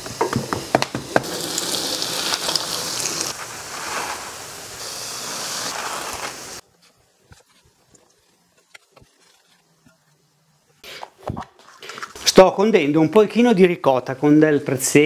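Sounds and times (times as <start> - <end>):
oil sizzling in a pan: 0.0 - 6.6.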